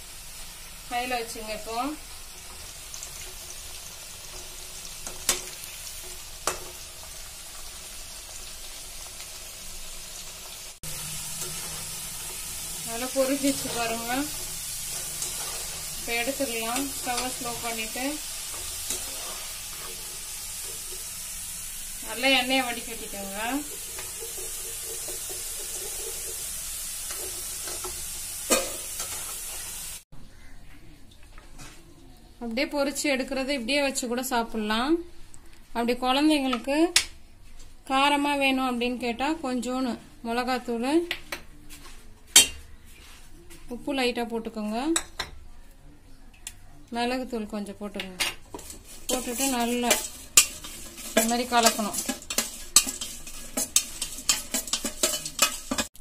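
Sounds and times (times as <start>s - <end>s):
potatoes sizzling in hot oil: 0.0s - 30.0s, 48.4s - 56.0s
skimmer clinking against pan: 49.1s - 55.9s.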